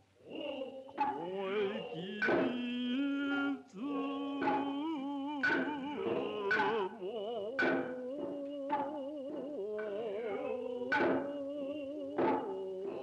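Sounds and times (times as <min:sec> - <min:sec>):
chanting with wavering vibrato: 0:00.0 - 0:13.0
sharp drum strikes: 0:02.1 - 0:03.5, 0:04.2 - 0:06.9, 0:07.6 - 0:09.5, 0:10.9 - 0:11.4.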